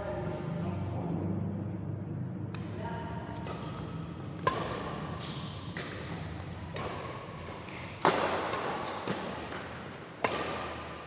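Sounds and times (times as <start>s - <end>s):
racket striking shuttlecock: 3.3s - 11.0s.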